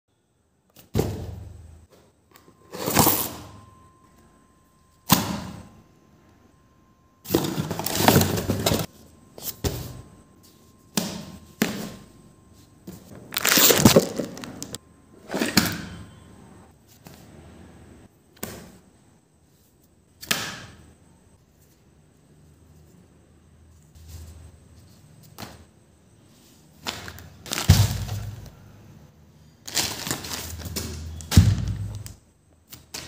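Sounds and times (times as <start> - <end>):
packaging crackling: 13.3 - 14.8, 29.6 - 32.1
tape tearing: 13.3 - 14.8.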